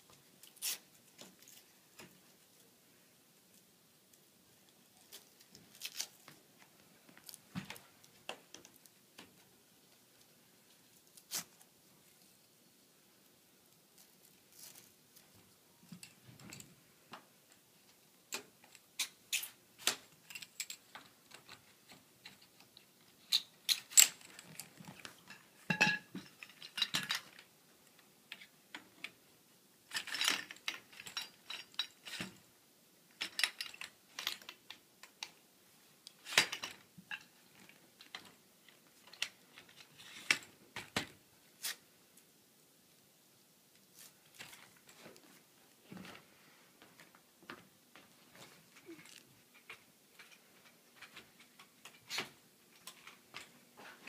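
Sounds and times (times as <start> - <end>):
metal tubes clacking together: 25.3 - 27.4.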